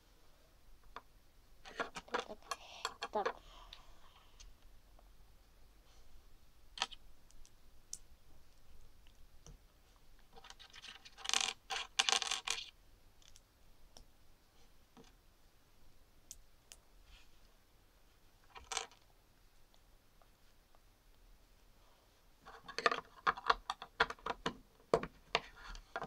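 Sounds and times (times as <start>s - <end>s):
plastic pieces clicking and rattling: 1.7s - 3.4s, 10.4s - 13.4s, 18.5s - 19.0s, 22.5s - 24.5s.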